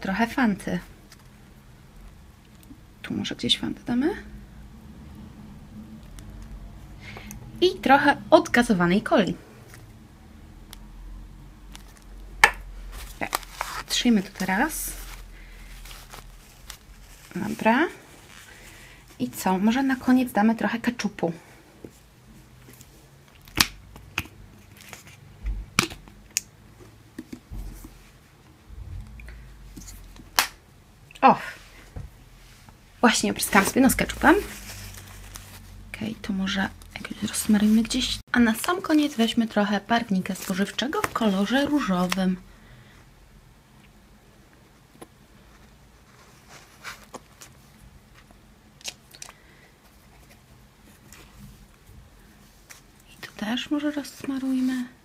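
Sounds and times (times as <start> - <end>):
low thumps: 28.6 - 29.8.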